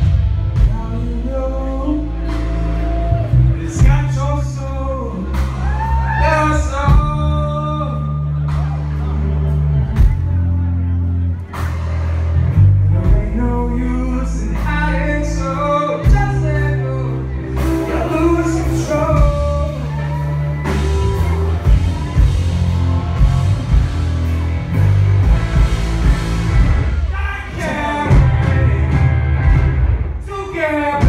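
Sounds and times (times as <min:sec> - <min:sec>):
man singing lead vocal: 0:00.0 - 0:08.7, 0:12.9 - 0:20.7, 0:27.1 - 0:31.0
live rock band with electric guitars: 0:00.0 - 0:31.0.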